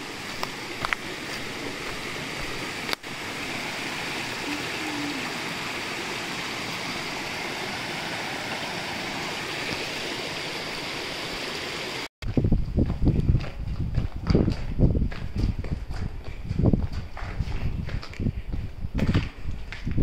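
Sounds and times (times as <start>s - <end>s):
stream running over rocks: 0.0s - 12.1s.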